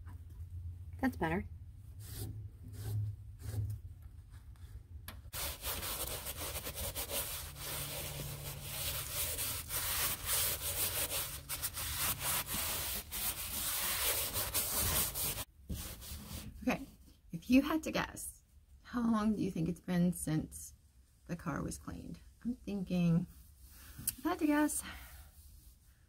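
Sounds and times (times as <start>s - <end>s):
cloth wiping dashboard: 5.3s - 16.6s.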